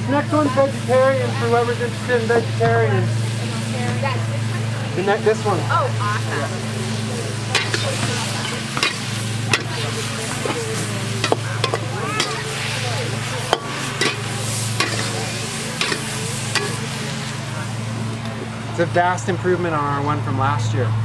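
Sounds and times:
vegetables sizzling in wok: 0.0 - 18.8
steady low hum: 0.0 - 21.0
metal ladle scraping wok: 6.6 - 17.5.

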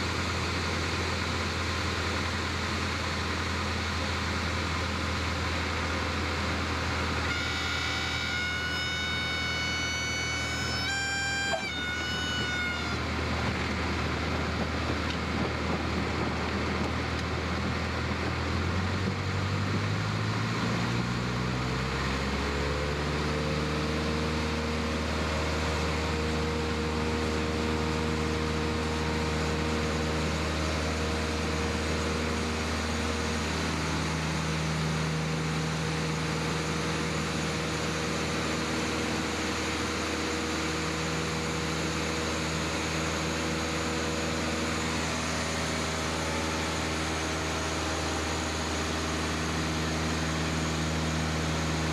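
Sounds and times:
propeller plane engine from cabin: 0.0 - 51.9.

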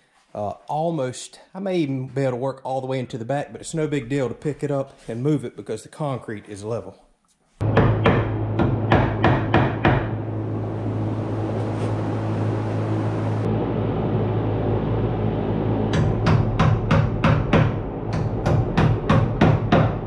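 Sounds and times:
hammer striking nails into wood: 7.6 - 10.1, 16.0 - 20.0.

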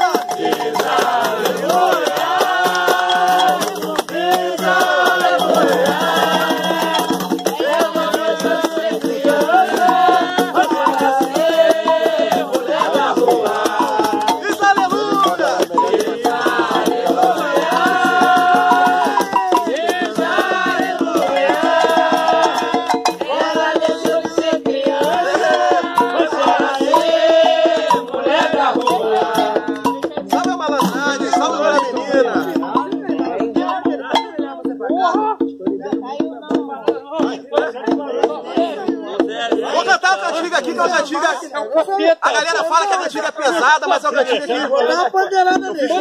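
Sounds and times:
hand drum beaten: 0.0 - 41.1
rattling percussion: 0.0 - 41.4
voices singing: 0.0 - 46.0
person singing: 4.6 - 27.2.

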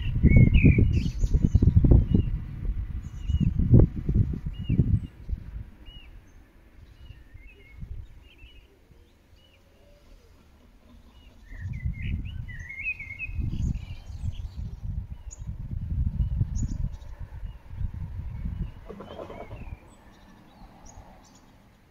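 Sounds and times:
wind rumble on microphone: 0.0 - 9.5, 10.9 - 21.5
birds chirping: 4.5 - 21.9.

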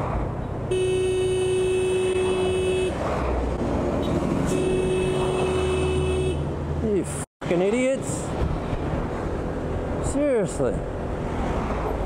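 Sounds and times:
road noise: 0.0 - 12.0
vehicle horn blasts: 0.7 - 3.0, 4.5 - 6.4.

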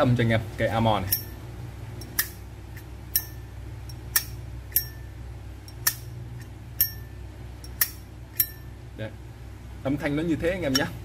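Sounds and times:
lighter lid clicking open and shut: 5.7 - 6.1, 7.6 - 8.6.

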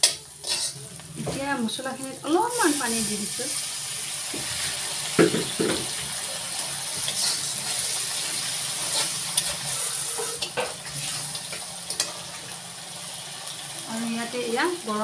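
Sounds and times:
paste sizzling in a pan: 0.0 - 15.0
steel spatula knocking on pan: 5.2 - 6.0.

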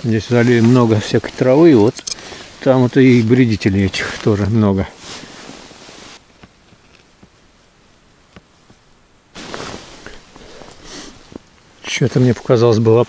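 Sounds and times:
outdoor hiss: 0.0 - 13.0.

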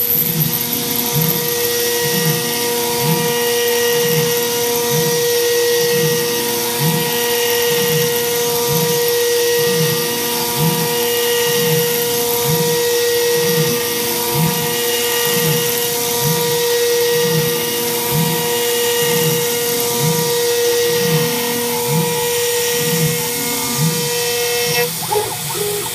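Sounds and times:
milling spindle whine: 0.0 - 25.9
metal cutting sound: 20.4 - 25.9.

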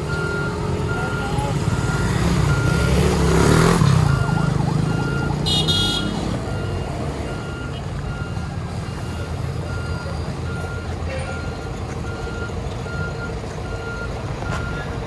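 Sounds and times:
motorcycle passing: 0.0 - 7.4
diesel bus engine pulling away: 0.0 - 15.0
warning beeper: 0.1 - 12.3.

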